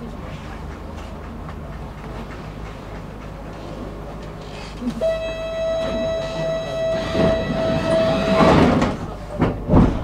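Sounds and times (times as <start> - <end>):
electronic warning tone: 5.0 - 8.5
heavy knocks and thumps: 8.4 - 10.0.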